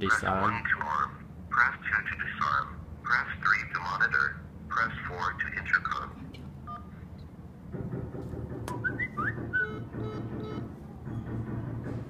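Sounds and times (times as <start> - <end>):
keypad tone: 8.7 - 10.8.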